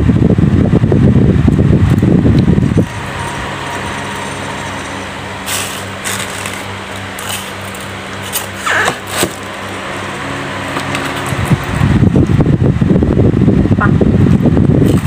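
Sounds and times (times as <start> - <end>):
electric fan humming: 0.0 - 15.0
paper bucket and plastic bag crinkling: 2.6 - 9.6.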